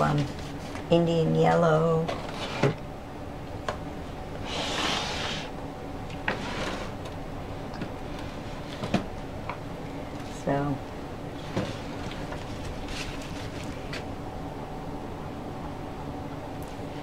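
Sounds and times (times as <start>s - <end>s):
faint steady hum: 0.0s - 17.0s
scraping rustle: 11.4s - 14.1s.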